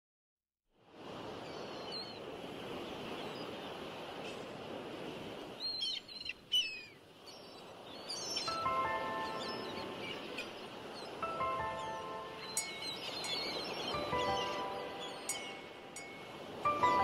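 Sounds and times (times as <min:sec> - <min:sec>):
birds chirping: 0:05.5 - 0:17.0.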